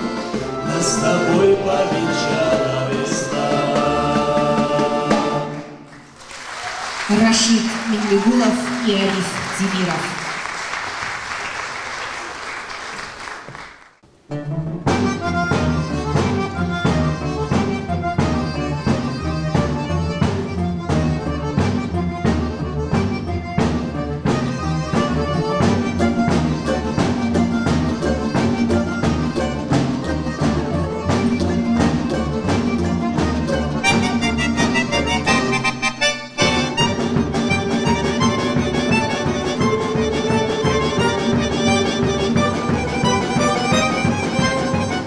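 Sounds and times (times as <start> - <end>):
folk instrumental ensemble: 0.0 - 45.0
audience applause: 5.9 - 14.0.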